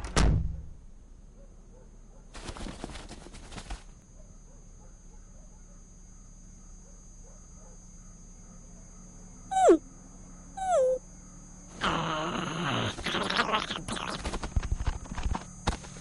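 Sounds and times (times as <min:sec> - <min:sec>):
dog whining: 0:09.5 - 0:09.8, 0:10.6 - 0:11.0.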